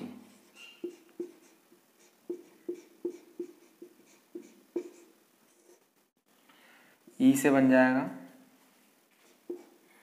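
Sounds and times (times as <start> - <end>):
marker squeaking on whiteboard: 0.4 - 5.8, 9.3 - 9.8.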